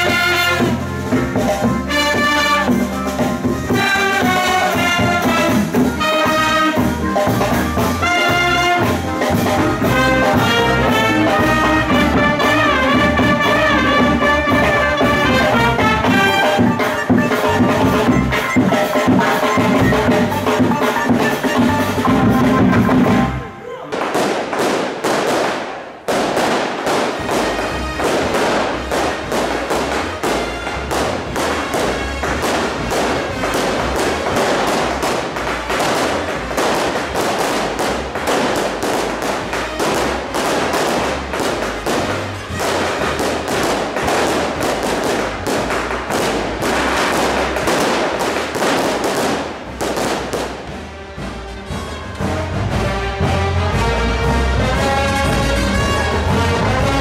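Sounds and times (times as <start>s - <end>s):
music: 0.0s - 23.8s, 26.6s - 57.0s
firecrackers going off: 0.0s - 57.0s.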